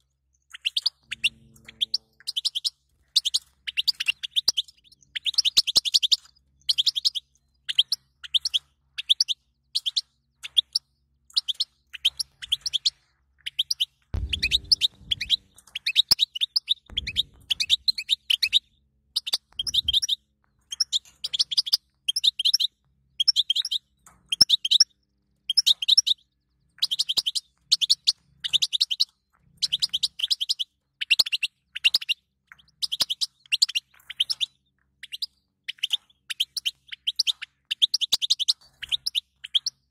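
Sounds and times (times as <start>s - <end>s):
goldfinch twittering: 0.5s - 24.8s
low thumps: 14.2s - 15.7s, 16.9s - 18.6s.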